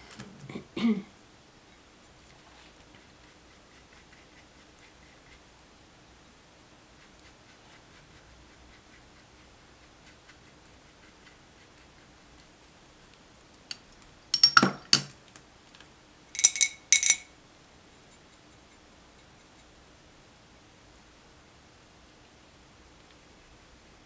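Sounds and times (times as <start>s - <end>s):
brush clinking against glass jar: 13.7s - 15.1s, 16.4s - 17.3s.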